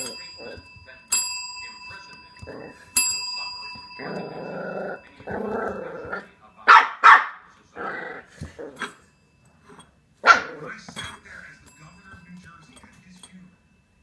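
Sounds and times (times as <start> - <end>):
desk bell ding: 0.0 - 6.6, 10.7 - 14.0
puppy growling: 4.0 - 6.4, 7.7 - 9.0, 10.2 - 11.2
puppy barking: 6.7 - 7.5, 10.2 - 10.6.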